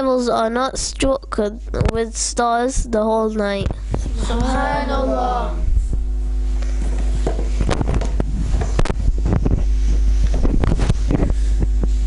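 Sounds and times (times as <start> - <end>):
faint electrical hum: 0.0 - 12.0
camera handling rumble: 6.6 - 12.0.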